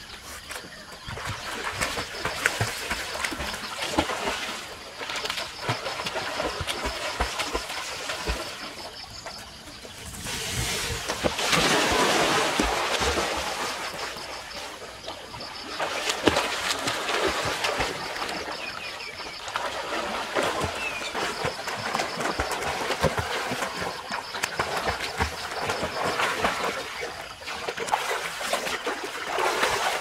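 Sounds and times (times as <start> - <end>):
pool water splashing: 0.0 - 30.0
water rushing down slide: 10.0 - 14.0.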